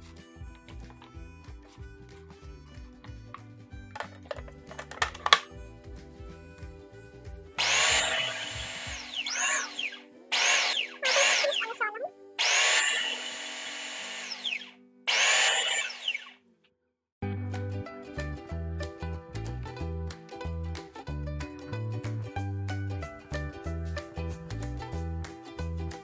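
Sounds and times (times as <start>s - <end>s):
food processor blades whirring: 7.6s - 11.8s, 12.4s - 16.4s.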